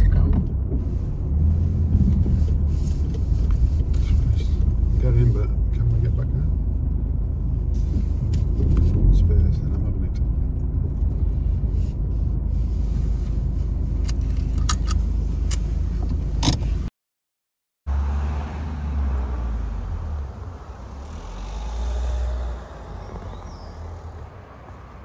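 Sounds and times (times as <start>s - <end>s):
car cabin rumble: 0.0s - 16.9s.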